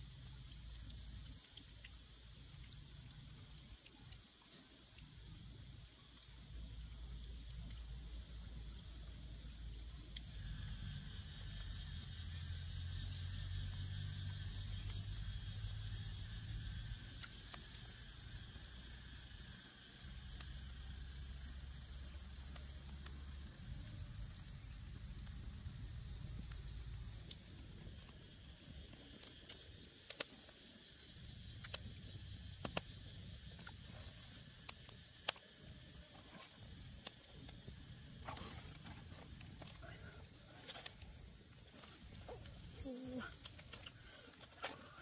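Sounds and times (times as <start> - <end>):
steady high hiss: 0.0 - 45.0
sharp clicks or snaps: 17.1 - 17.9, 28.0 - 30.8, 31.6 - 33.8, 34.6 - 35.6.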